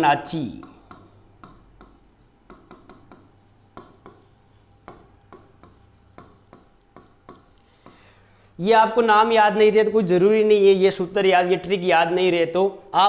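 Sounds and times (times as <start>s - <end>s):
stylus tapping and scratching screen: 0.4s - 8.0s.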